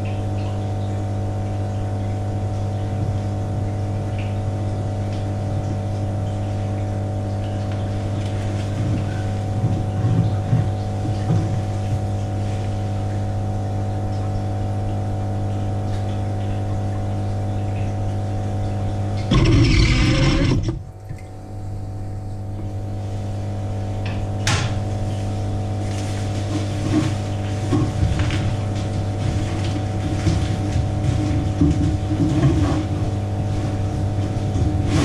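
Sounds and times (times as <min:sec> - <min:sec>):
steady low hum: 0:18.2 - 0:23.8.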